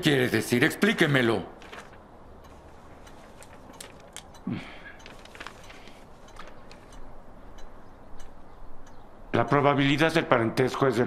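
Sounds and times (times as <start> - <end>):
paper rustling: 1.6 - 2.0, 2.7 - 4.3, 5.0 - 7.0
small clicks: 1.6 - 9.0.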